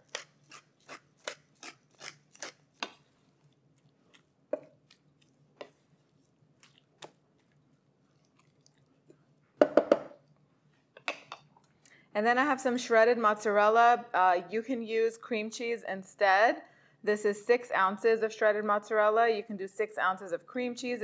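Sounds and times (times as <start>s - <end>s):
wooden spatula stirring in skillet: 2.8s - 9.4s.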